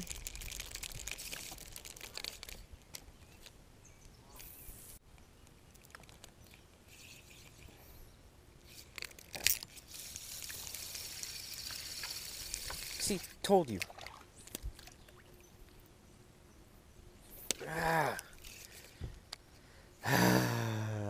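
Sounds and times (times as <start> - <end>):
fishing reel clicks and rustles: 0.0 - 3.6, 5.7 - 7.9, 8.6 - 13.9, 18.2 - 19.6.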